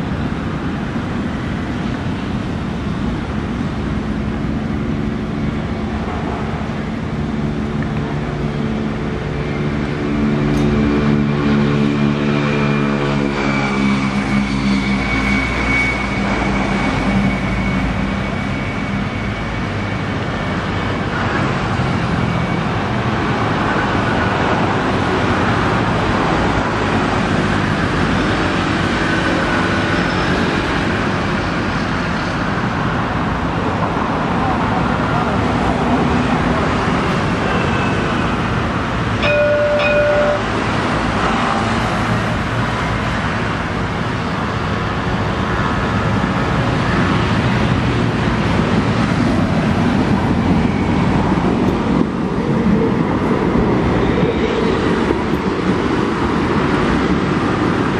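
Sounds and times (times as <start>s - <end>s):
tram electric hum: 0.0s - 57.9s
tram onboard equipment noise: 0.0s - 57.9s
thin high whine: 39.2s - 41.6s.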